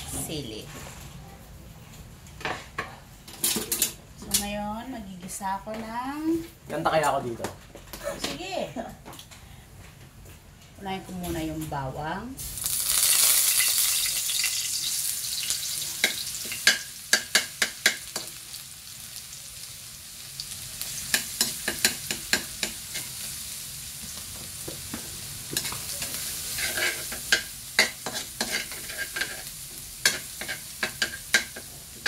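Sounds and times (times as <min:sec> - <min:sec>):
garlic sizzling in hot oil: 0:12.4 - 0:32.0
metal spatula scraping a pan: 0:25.6 - 0:31.7.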